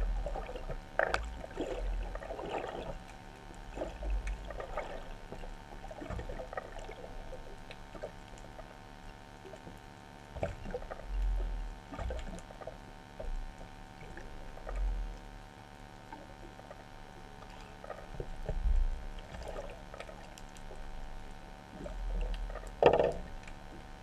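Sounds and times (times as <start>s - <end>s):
faint steady hum: 0.0s - 24.0s
water sloshing against housing: 0.3s - 8.3s
small crackles and clicks: 0.6s - 1.6s, 5.2s - 15.4s, 16.0s - 24.0s.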